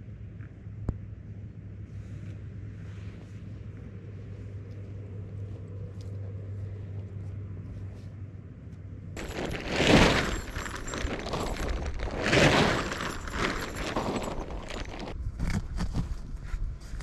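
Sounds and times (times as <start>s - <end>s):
fabric flapping: 9.2s - 15.2s
tent fabric rustling: 9.2s - 15.2s.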